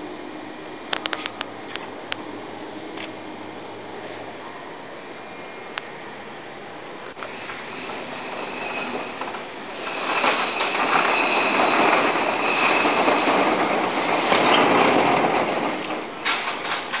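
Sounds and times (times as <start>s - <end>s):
metal garage door rattling down: 7.3s - 17.0s.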